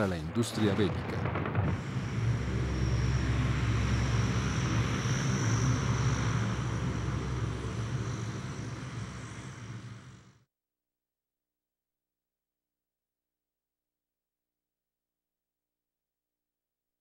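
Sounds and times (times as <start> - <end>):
propeller aircraft engines droning: 0.0 - 10.3.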